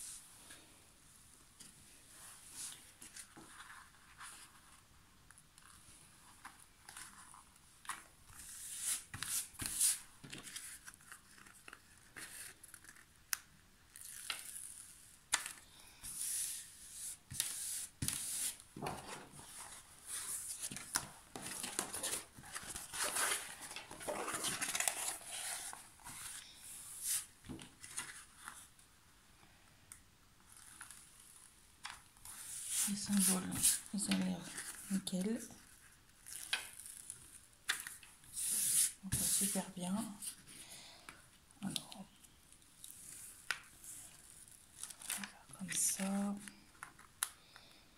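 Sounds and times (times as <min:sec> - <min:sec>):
plastic sheet rustling and crinkling: 0:17.3 - 0:28.7, 0:32.4 - 0:35.5.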